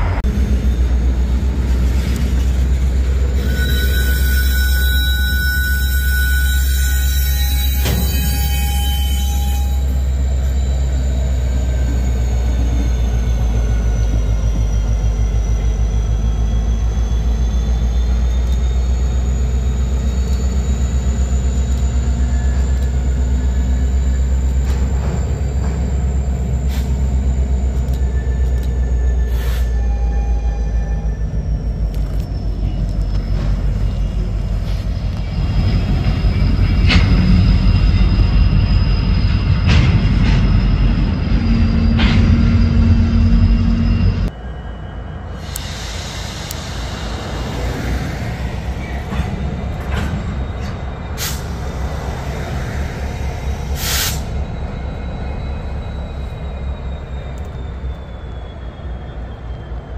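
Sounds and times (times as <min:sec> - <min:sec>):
diesel locomotive engine rumble: 0:00.0 - 0:59.9
thin high squeal: 0:03.2 - 0:59.7
train wheel and car clatter: 0:18.1 - 0:29.6, 0:48.6 - 0:51.7.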